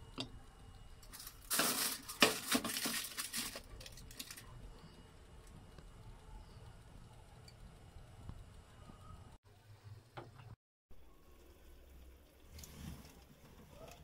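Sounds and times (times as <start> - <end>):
foil rustling and scraping: 1.1 - 4.5.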